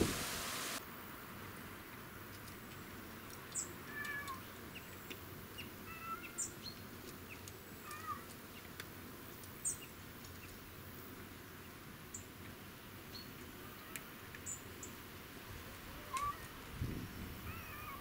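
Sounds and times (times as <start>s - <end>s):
faint steady hiss: 0.0s - 18.0s
small birds chirping: 2.7s - 8.8s, 9.4s - 10.6s, 13.0s - 15.0s.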